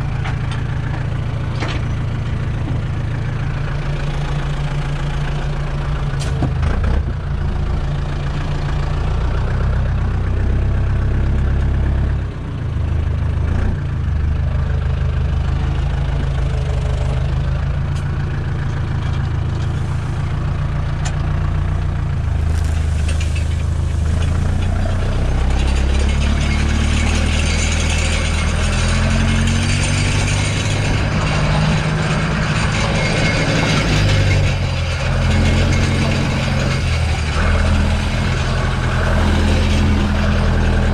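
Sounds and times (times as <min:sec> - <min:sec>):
tractor diesel engine running: 0:00.0 - 0:40.9.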